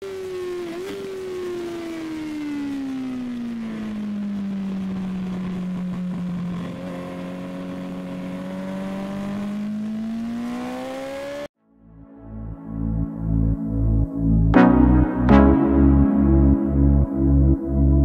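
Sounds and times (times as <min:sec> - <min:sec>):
motorcycle engine revving: 0:03.1 - 0:11.5.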